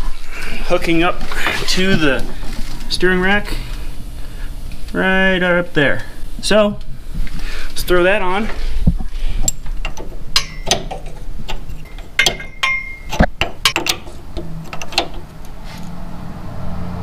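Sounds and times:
wrench clinking on metal fitting: 9.4s - 15.3s.

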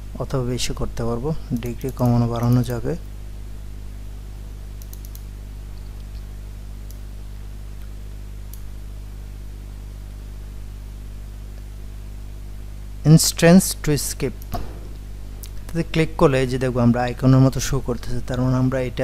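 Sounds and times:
low electrical hum: 0.0s - 19.0s
computer mouse clicks: 1.6s - 2.8s, 4.8s - 7.0s.

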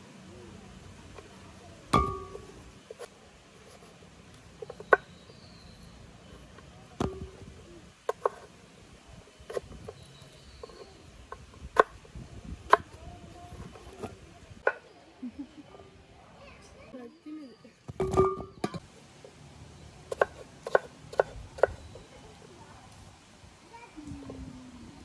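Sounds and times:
chunks dropping into pot: 1.9s - 2.6s.

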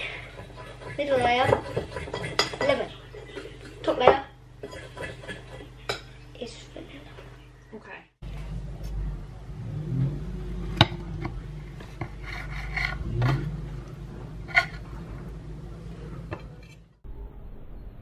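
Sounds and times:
knife scraping on plate: 0.3s - 3.8s, 11.9s - 13.5s, 14.5s - 14.8s
low hum: 7.4s - 18.0s.

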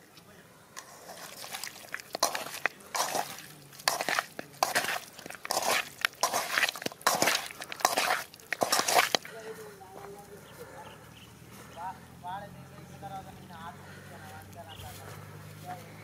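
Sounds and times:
hand squishing raw chicken: 0.7s - 9.7s.

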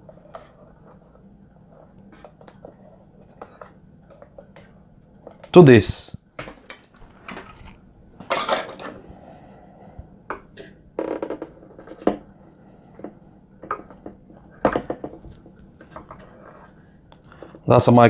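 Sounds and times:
hard plastic knocking and scraping: 13.0s - 16.7s.

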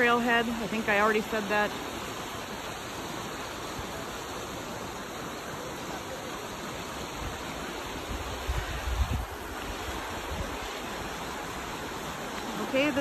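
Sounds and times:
creek water rushing: 0.0s - 13.0s
wind rumble on microphone: 8.0s - 10.8s.

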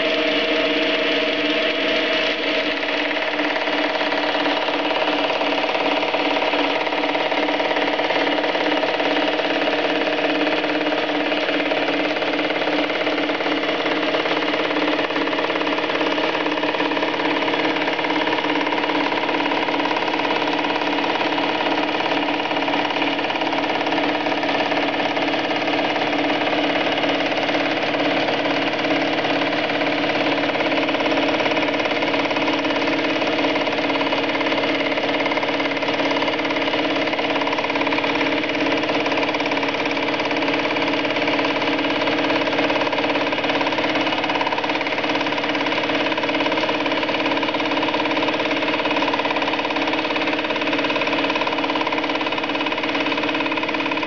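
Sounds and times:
lathe machining hum: 0.0s - 54.0s.

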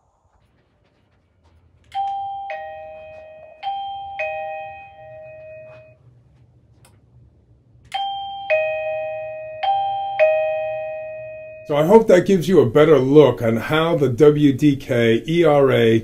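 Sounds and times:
doorbell ding-dong chime: 1.9s - 6.0s, 7.9s - 11.7s.

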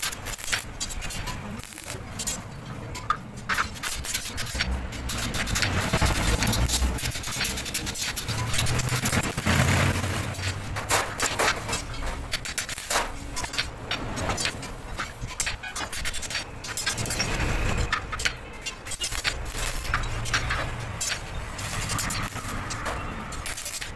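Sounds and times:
low workshop rumble: 0.0s - 15.4s
metallic clinks and scrapes: 0.0s - 23.9s.

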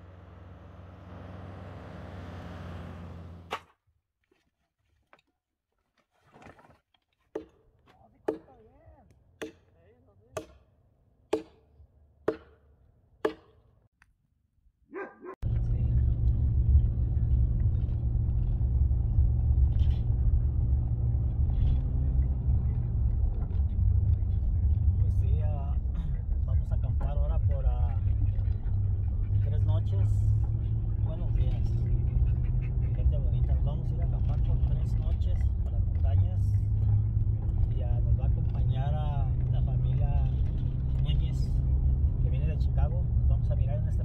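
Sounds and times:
car engine running: 0.0s - 3.5s, 15.4s - 44.0s.

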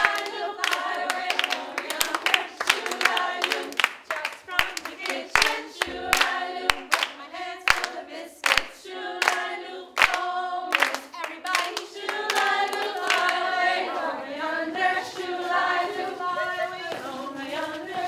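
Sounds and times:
hands clapping on the beat: 0.0s - 14.0s
women singing together: 0.0s - 18.0s.

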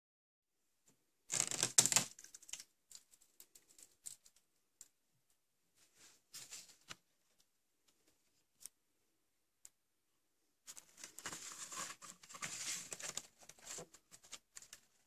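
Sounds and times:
small irregular clicks: 1.3s - 5.0s.

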